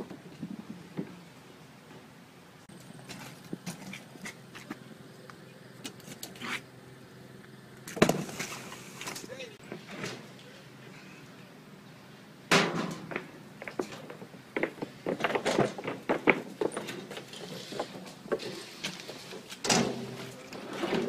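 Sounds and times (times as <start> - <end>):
wheelbarrow rattling over wooden planks: 7.9 - 10.4, 12.5 - 21.0.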